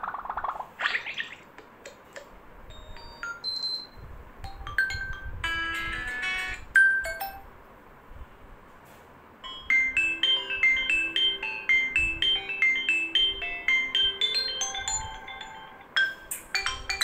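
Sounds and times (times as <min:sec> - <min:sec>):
phone ringtone chimes and beeps: 0:02.7 - 0:07.4, 0:09.4 - 0:17.0.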